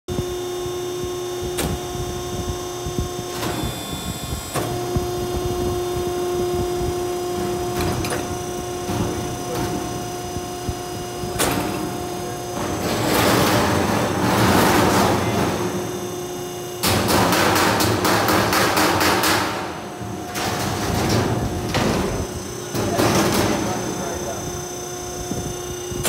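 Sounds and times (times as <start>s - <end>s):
steady motor hum: 0.1s - 26.0s.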